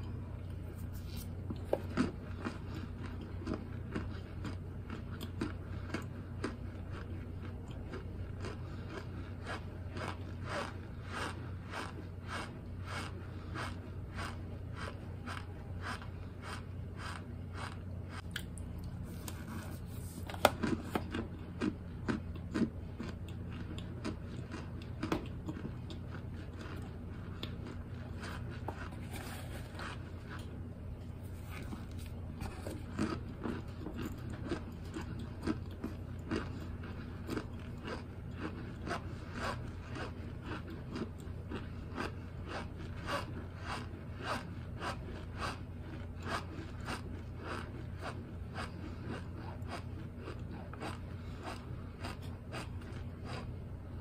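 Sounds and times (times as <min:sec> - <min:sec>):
crisp chewing crunches: 0:00.1 - 0:54.0.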